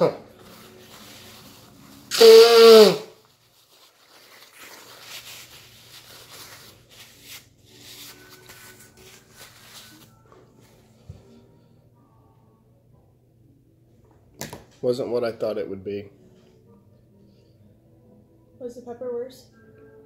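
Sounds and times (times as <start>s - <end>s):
paper towel rustling: 0.2s - 2.1s, 2.8s - 10.9s
man blowing nose: 2.1s - 3.2s.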